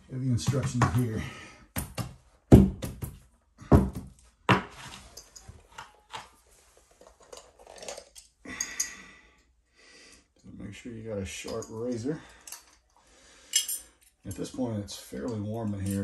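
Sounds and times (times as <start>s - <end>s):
heavy thumps: 0.4s - 4.7s.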